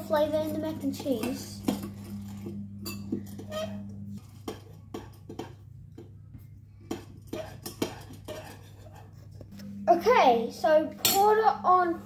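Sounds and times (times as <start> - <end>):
low steady hum: 0.0 - 12.0
spoon scraping against bowl: 6.9 - 9.7.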